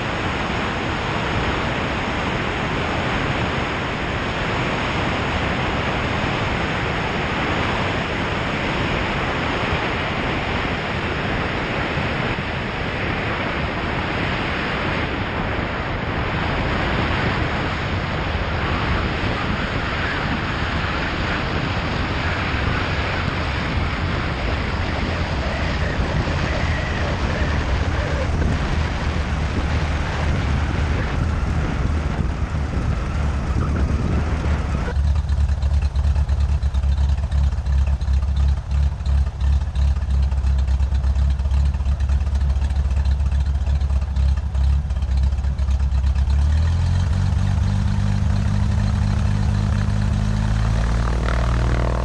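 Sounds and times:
wind rushing over microphone: 0:00.0 - 0:36.6, 0:47.4 - 0:52.0
airplane engine: 0:00.0 - 0:52.0
low rumble: 0:17.3 - 0:52.0.

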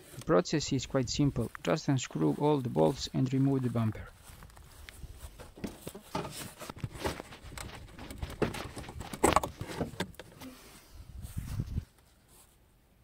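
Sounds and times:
plastic clicks and knocks: 0:05.6 - 0:10.3.

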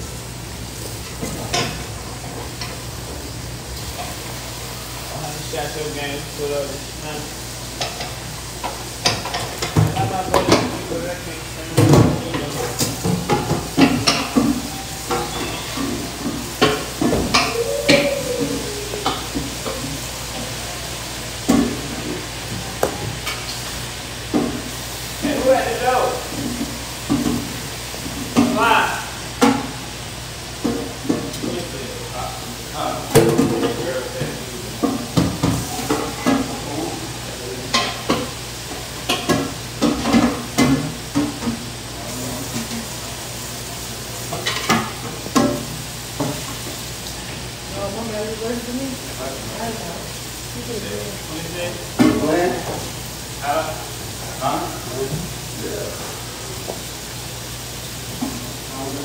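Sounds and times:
deep-frying sizzle: 0:00.0 - 0:59.0
utensils scraping pots: 0:12.3 - 0:20.2.

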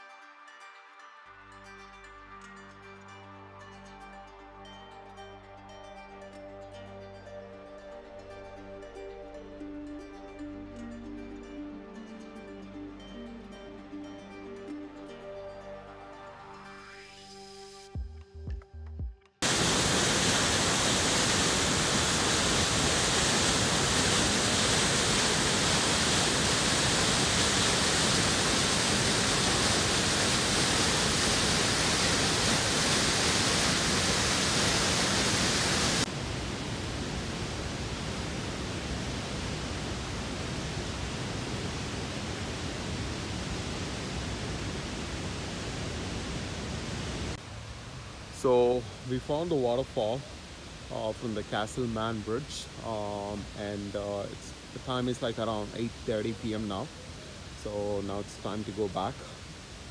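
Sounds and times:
waterfall rushing over rock: 0:19.4 - 0:59.9.

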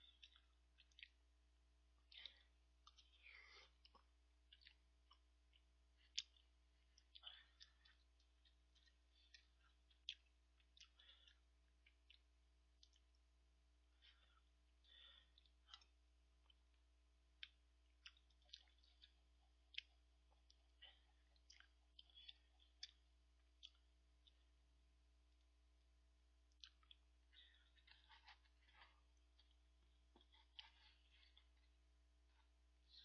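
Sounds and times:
man chewing and lip smacking: 0:00.0 - 0:01.3, 0:01.9 - 0:33.0.

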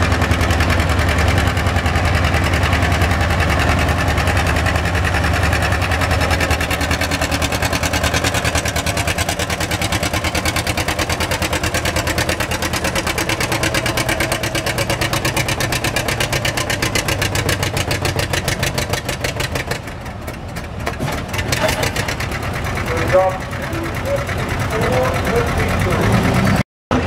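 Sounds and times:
tractor engine under heavy load: 0:00.0 - 0:27.0.

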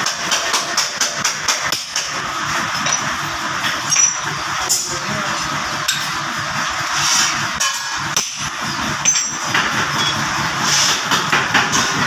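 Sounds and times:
hammer striking steel on anvil: 0:02.8 - 0:03.1, 0:07.6 - 0:10.2.

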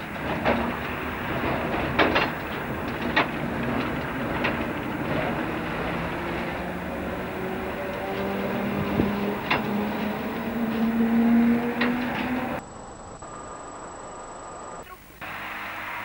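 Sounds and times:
wheels clacking over rails: 0:00.0 - 0:12.6
tram rumbling: 0:00.0 - 0:12.7.

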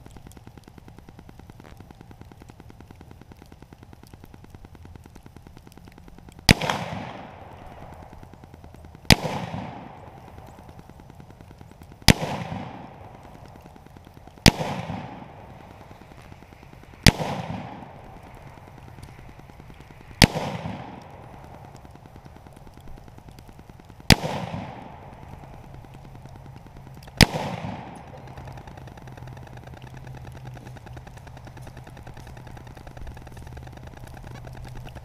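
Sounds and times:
rifle shots with echo: 0:06.5 - 0:08.4, 0:09.0 - 0:11.3, 0:12.0 - 0:23.1, 0:23.9 - 0:26.4, 0:27.0 - 0:34.4.

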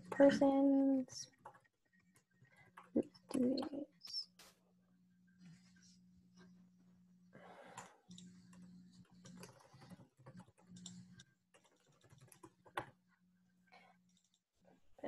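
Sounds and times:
typing on computer keyboard: 0:07.7 - 0:13.0.

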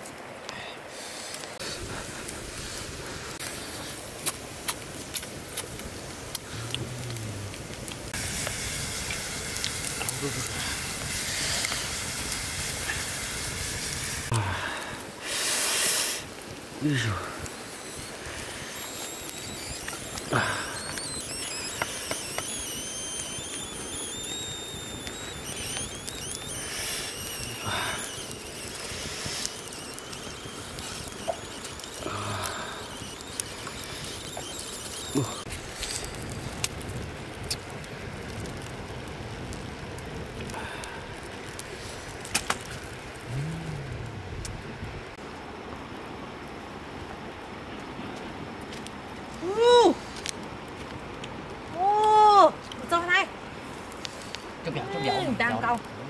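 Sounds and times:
wood fire crackling: 0:00.0 - 0:56.0
high thin whistling calls: 0:17.0 - 0:36.2.

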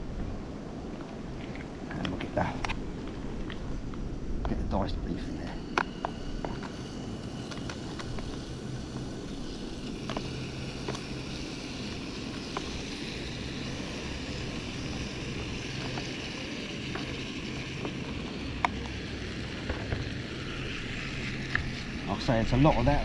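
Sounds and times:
gas stove burning: 0:00.0 - 0:23.0.

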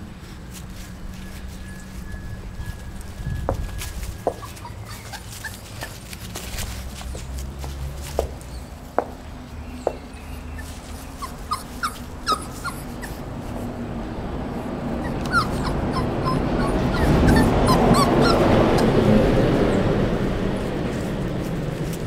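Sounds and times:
puppy whimpering: 0:00.6 - 0:07.4, 0:09.9 - 0:13.7, 0:14.9 - 0:19.0.

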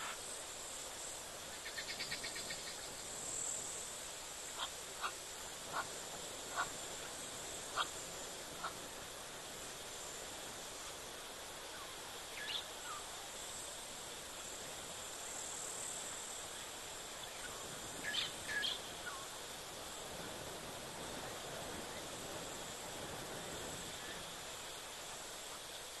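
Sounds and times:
insects chirring: 0:00.0 - 0:26.0
small animal sharp calls: 0:04.6 - 0:05.9, 0:07.7 - 0:08.0.

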